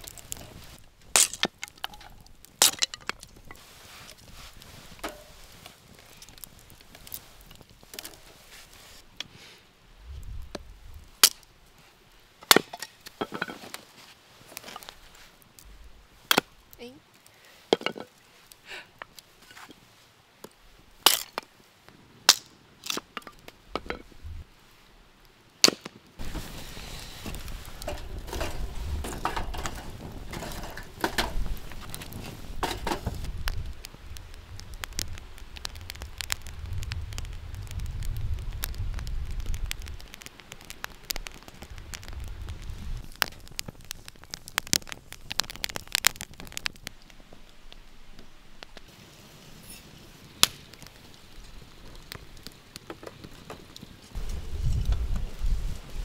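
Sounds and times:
fire crackling and popping: 0.0s - 56.0s.

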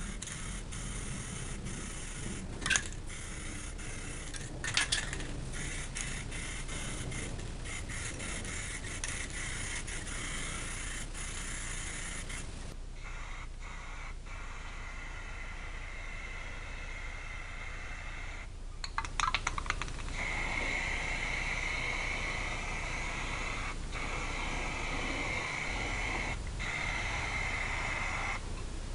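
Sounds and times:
spray can hissing: 0.0s - 18.3s, 18.9s - 28.4s
clattering rattle: 2.6s - 3.1s, 4.2s - 6.3s.

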